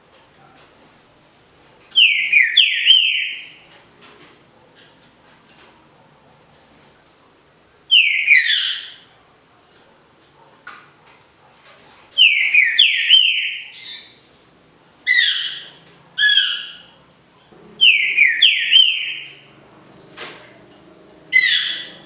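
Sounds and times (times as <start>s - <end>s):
bird whistling song: 2.0s - 3.6s, 7.9s - 9.0s, 12.2s - 14.2s, 17.8s - 19.4s, 21.3s - 22.0s.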